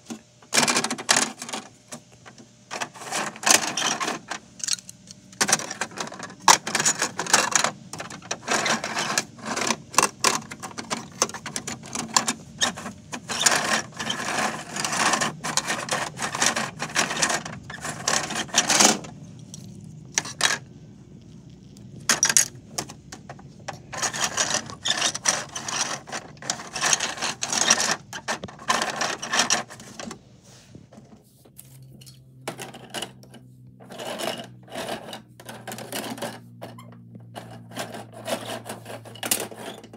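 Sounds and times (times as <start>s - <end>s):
plastic toy pieces clattering: 2.7s - 20.7s, 22.0s - 30.1s.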